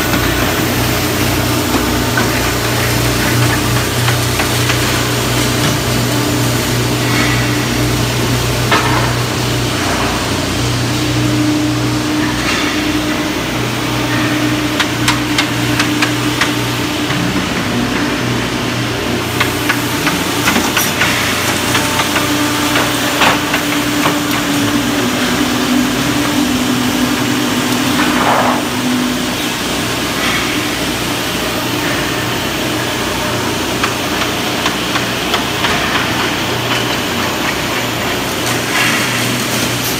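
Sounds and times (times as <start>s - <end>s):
machine hum: 0.0s - 39.9s.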